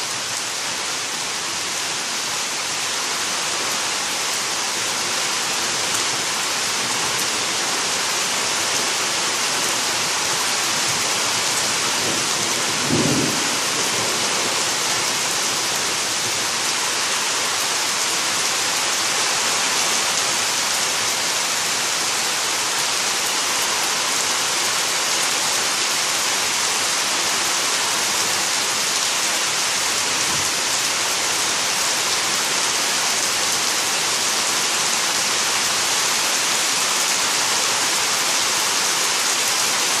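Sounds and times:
heavy rain pouring: 0:00.0 - 0:40.0
low peal of thunder: 0:12.7 - 0:13.9.

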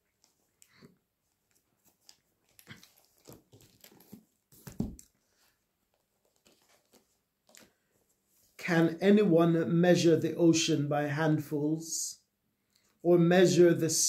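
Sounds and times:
rustling and handling noise: 0:00.0 - 0:08.6.

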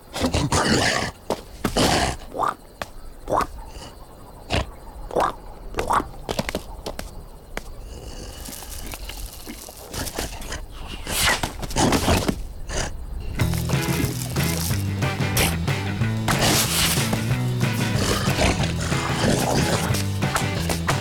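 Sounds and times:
rustling and scraping noises: 0:06.3 - 0:21.0.

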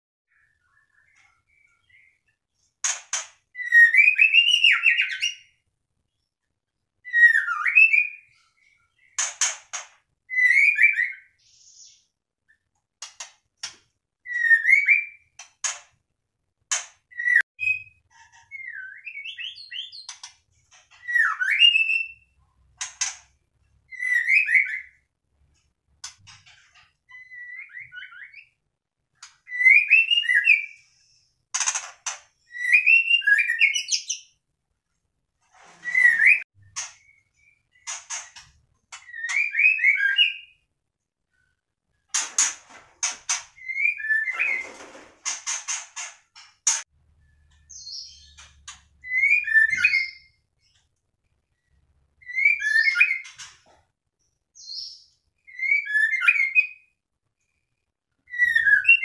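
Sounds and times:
bird whistling song: 0:03.6 - 0:05.6, 0:07.0 - 0:09.2, 0:10.3 - 0:12.2, 0:14.2 - 0:15.4, 0:17.1 - 0:20.2, 0:20.9 - 0:22.4, 0:23.9 - 0:25.1, 0:27.1 - 0:28.6, 0:29.4 - 0:31.0, 0:32.5 - 0:34.4, 0:35.8 - 0:38.2, 0:38.9 - 0:40.7, 0:43.6 - 0:44.6, 0:47.2 - 0:50.8, 0:51.6 - 0:53.5, 0:54.6 - 0:57.0, 0:58.2 - 0:59.0.

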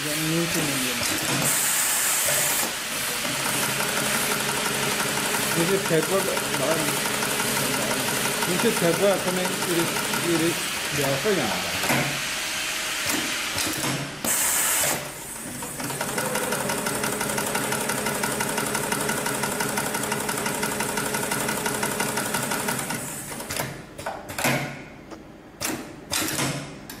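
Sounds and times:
sewing machine stitching: 0:01.0 - 0:10.9, 0:13.6 - 0:23.6.

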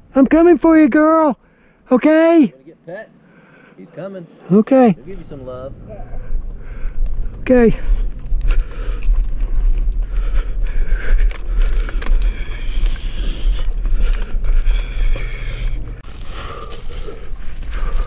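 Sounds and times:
wind rumble: 0:04.9 - 0:18.0
climbing gear clicks and scrapes: 0:10.9 - 0:16.0.

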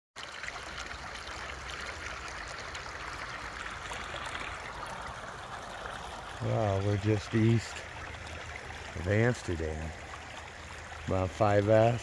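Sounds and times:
stream water running over rocks: 0:00.2 - 0:12.0.

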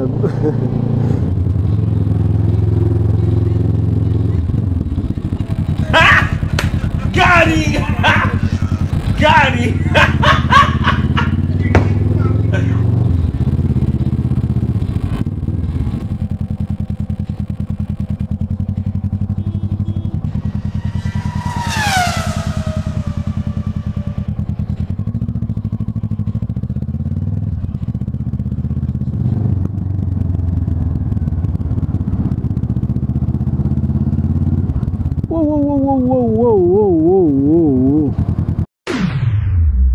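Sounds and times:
motorcycle engine running: 0:00.0 - 0:38.7.

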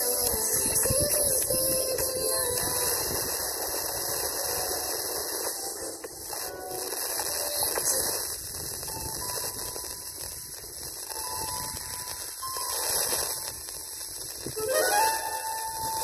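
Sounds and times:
faint radio tones: 0:00.0 - 0:16.0
radio static hiss: 0:00.0 - 0:16.0.

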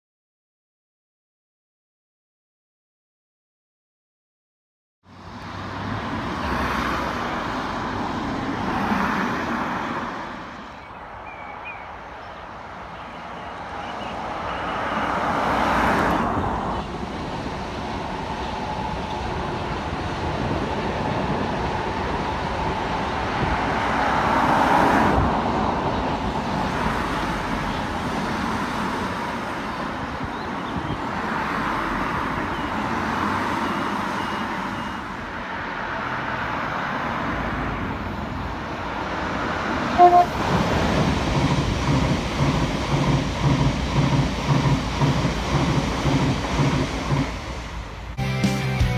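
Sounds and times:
train wheels rumbling on rail: 0:12.3 - 0:34.8, 0:38.1 - 0:48.2.

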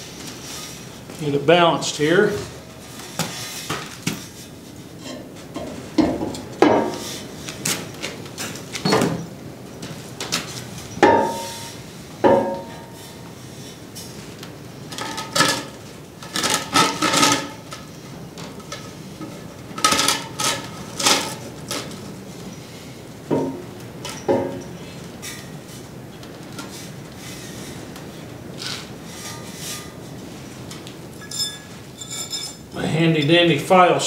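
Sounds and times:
metal clanks: 0:10.9 - 0:13.2, 0:14.9 - 0:22.0, 0:23.3 - 0:25.6
rattling knocks: 0:11.0 - 0:13.0, 0:23.3 - 0:24.7
steel pipe scraping on metal: 0:28.6 - 0:30.2, 0:31.2 - 0:32.7.

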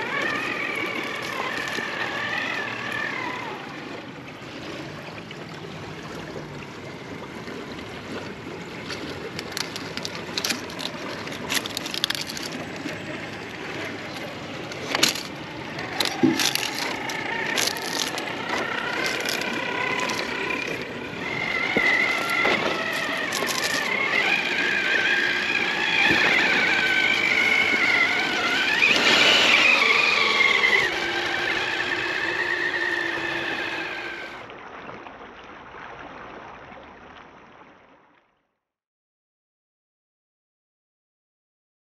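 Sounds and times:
toy car clattering over rocks: 0:00.0 - 0:03.4, 0:08.8 - 0:34.4
electric motor whine: 0:00.0 - 0:04.1, 0:08.8 - 0:34.4.

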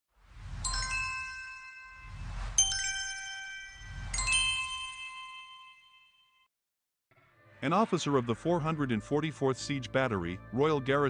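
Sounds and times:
low whooshes: 0:00.2 - 0:05.0
bright many-toned chime: 0:00.5 - 0:06.5.

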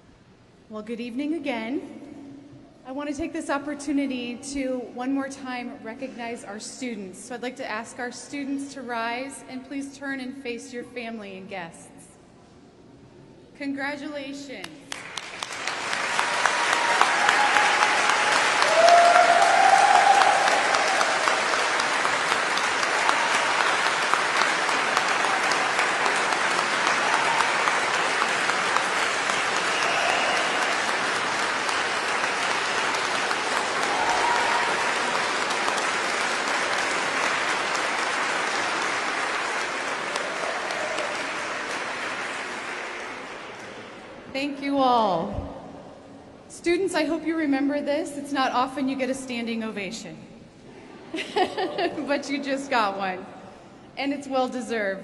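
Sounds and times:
audience clapping: 0:14.6 - 0:44.3.

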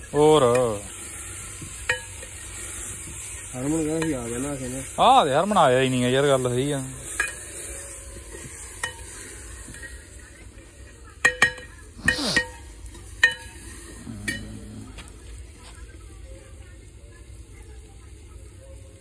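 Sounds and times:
faint steady sizzle: 0:00.0 - 0:19.0
metal ladle clinking against pot: 0:01.6 - 0:02.4, 0:07.1 - 0:07.5, 0:08.4 - 0:10.1, 0:11.1 - 0:14.5.

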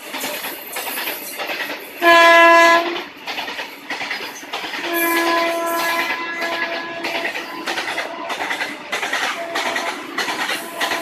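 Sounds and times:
train wheels clattering over rail joints: 0:00.0 - 0:11.0
locomotive horn blast: 0:02.0 - 0:03.0, 0:04.8 - 0:07.4, 0:09.3 - 0:10.0.

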